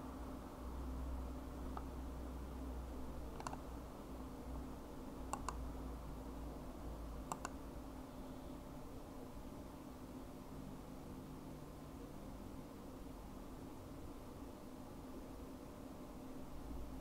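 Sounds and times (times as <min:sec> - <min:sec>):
steady low hum: 0:00.0 - 0:17.0
computer mouse clicks: 0:03.3 - 0:03.7, 0:05.3 - 0:05.6, 0:07.2 - 0:07.6.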